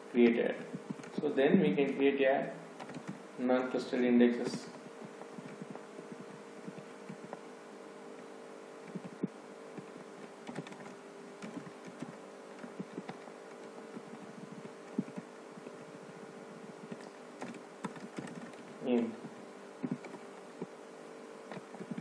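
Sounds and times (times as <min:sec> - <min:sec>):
faint hum: 0:00.0 - 0:22.0
keyboard typing: 0:02.8 - 0:03.2, 0:05.4 - 0:05.8, 0:08.8 - 0:19.1, 0:19.8 - 0:20.8.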